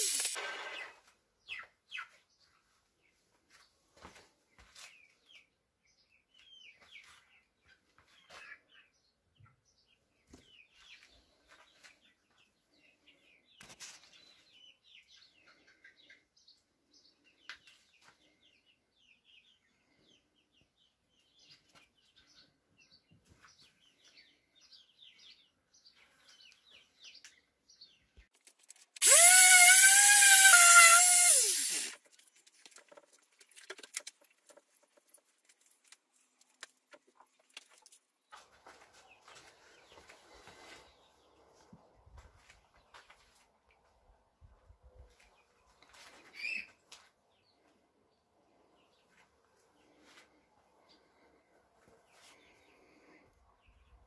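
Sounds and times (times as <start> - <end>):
power tool motor whine: 0.0 - 0.4, 29.0 - 31.9
faint bird chirps: 46.0 - 46.8.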